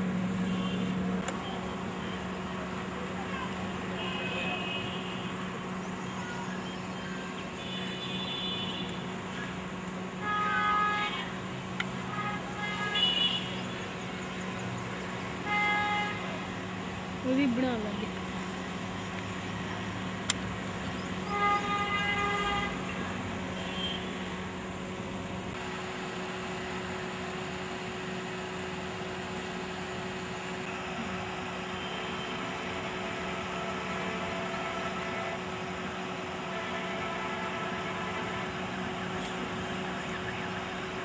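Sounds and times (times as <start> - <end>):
vehicle horn: 0.3 - 1.6, 3.9 - 5.4, 7.5 - 9.1, 10.2 - 13.7, 15.4 - 16.5, 21.2 - 24.2, 31.6 - 35.6, 36.3 - 39.4
faint horn-like tones: 31.6 - 35.6, 36.3 - 39.4.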